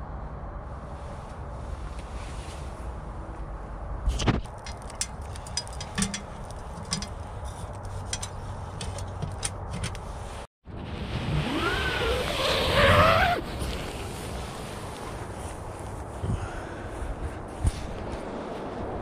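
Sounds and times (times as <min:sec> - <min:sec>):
zipper pulled: 0:11.3 - 0:14.0.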